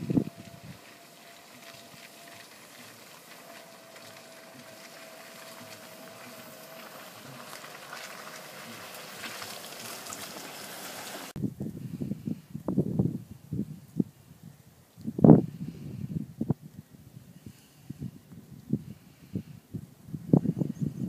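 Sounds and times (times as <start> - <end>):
bushes brushing against car: 0.0 - 11.4
car approaching slowly: 0.0 - 11.4
tyres on lane: 0.0 - 11.4.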